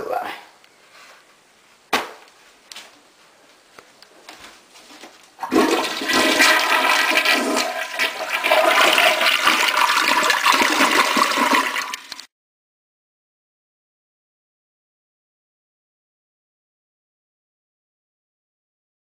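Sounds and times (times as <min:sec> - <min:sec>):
toilet flushing: 0:05.4 - 0:12.3.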